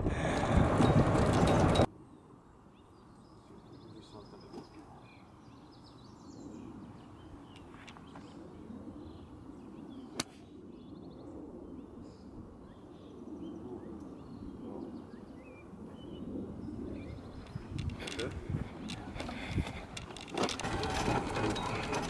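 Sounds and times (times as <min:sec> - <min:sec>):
small birds chirping and trilling: 0:02.1 - 0:22.0.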